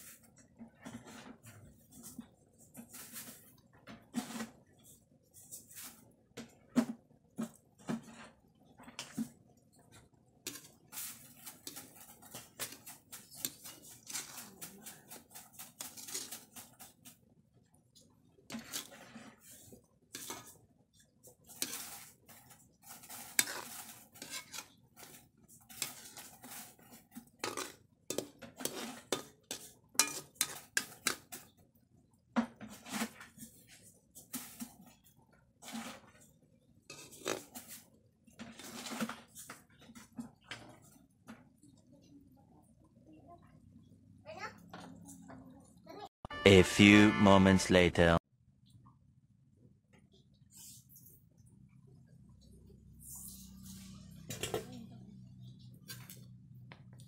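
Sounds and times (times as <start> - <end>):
spatula scraping a wok: 0.0 - 6.2, 10.4 - 17.3, 18.5 - 31.6, 32.5 - 35.0, 35.6 - 39.5, 53.0 - 54.6.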